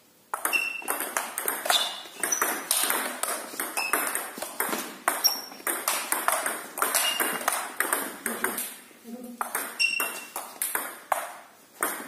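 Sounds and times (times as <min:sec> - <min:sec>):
table tennis ball clicking: 0:00.3 - 0:08.8.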